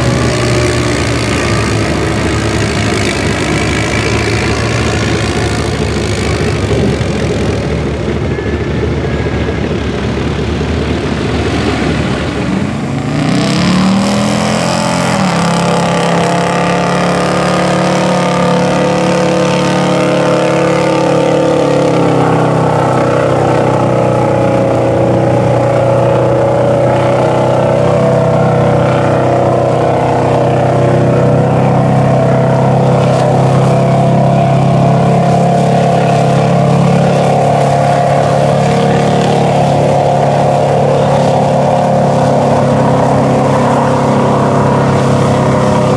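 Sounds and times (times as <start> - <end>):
four-wheeler engine running rough: 0.0 - 45.9
pickup truck engine revving: 0.0 - 45.9.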